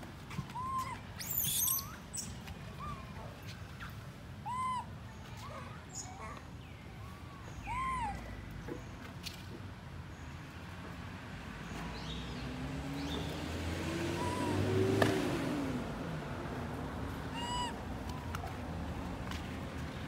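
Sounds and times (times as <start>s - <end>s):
high chirping calls: 0.6s - 3.0s, 14.0s - 14.8s, 17.4s - 17.8s
vehicle engine driving past: 11.9s - 17.6s.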